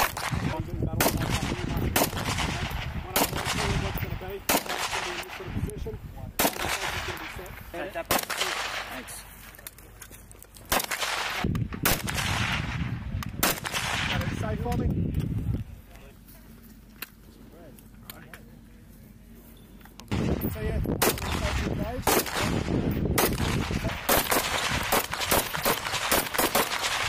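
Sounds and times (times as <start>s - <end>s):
rifle shots with echo: 0.0s - 5.6s, 6.4s - 9.2s, 10.7s - 14.6s, 20.1s - 27.0s.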